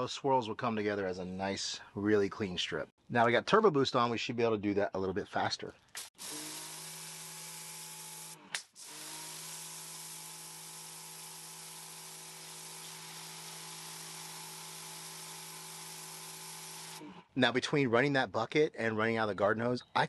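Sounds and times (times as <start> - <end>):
pressure washer pump humming: 6.1 - 17.0.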